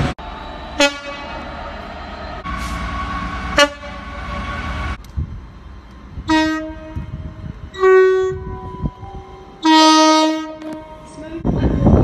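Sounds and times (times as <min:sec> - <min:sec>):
train passing with rush and rumble: 0:00.0 - 0:12.0
two-tone train horn blasts: 0:00.8 - 0:01.4, 0:03.5 - 0:04.6, 0:06.2 - 0:08.8, 0:09.6 - 0:10.9.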